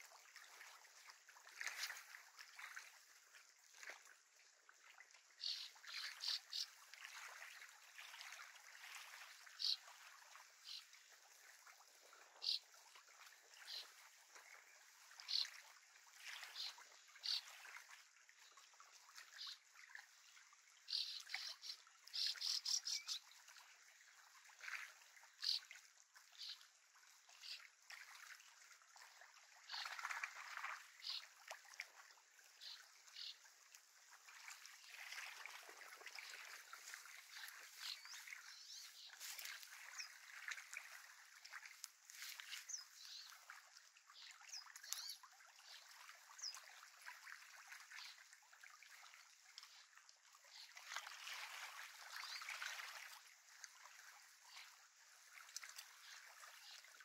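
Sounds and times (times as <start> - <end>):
small waves lapping at shore: 0.0 - 57.0.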